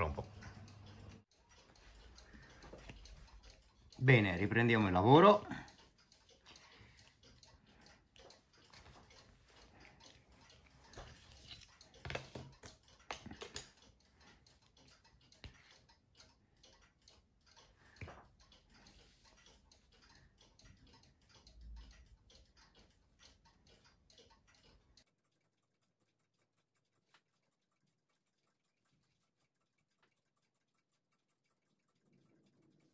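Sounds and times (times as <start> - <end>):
rapid clock ticking: 0.0 - 32.9.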